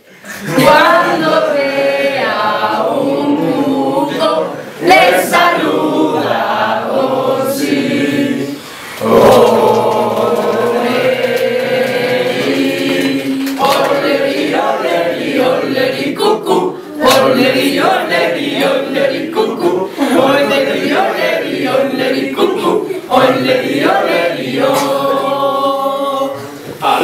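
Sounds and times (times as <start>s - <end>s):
young voices singing unaccompanied: 0.4s - 27.0s.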